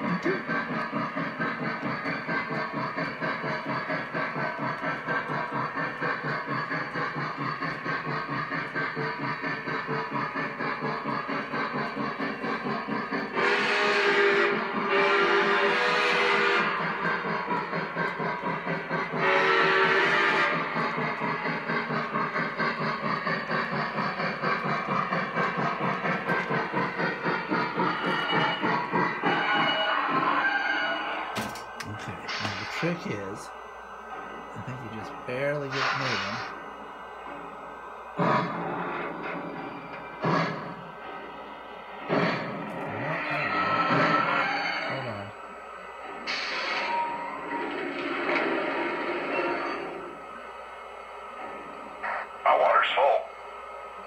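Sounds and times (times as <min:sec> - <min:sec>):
model steam locomotive chuffing: 0:00.0 - 0:54.0
steam hiss: 0:35.6 - 0:36.5.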